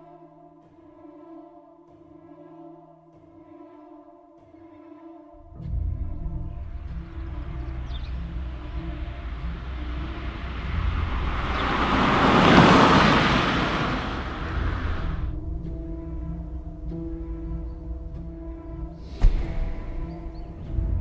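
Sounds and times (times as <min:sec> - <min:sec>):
low drone: 0:05.4 - 0:21.0
rushing whoosh: 0:06.7 - 0:15.4.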